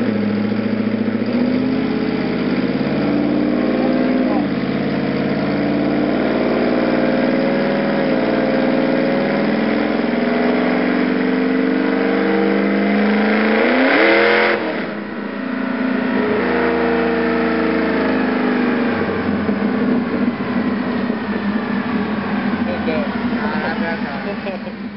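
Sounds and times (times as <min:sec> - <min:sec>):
truck engine revving on dyno: 0:00.0 - 0:24.9.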